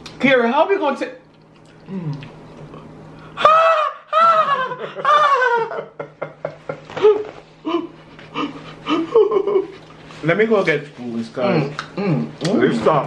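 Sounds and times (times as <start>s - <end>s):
person laughing: 3.4s - 9.8s.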